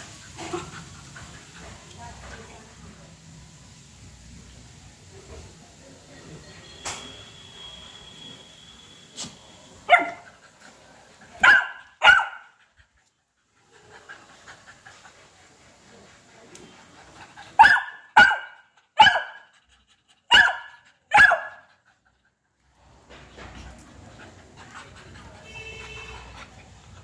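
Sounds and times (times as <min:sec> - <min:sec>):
dog barking: 0:09.9 - 0:10.2, 0:11.4 - 0:12.5, 0:17.6 - 0:19.5, 0:20.3 - 0:21.6.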